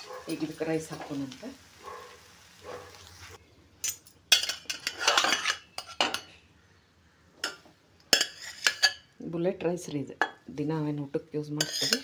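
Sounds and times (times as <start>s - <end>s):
faint frying sizzle: 0.0s - 6.3s, 7.4s - 12.0s
steel spoon scraping steel pot: 3.8s - 6.2s, 7.4s - 9.1s, 11.6s - 12.0s.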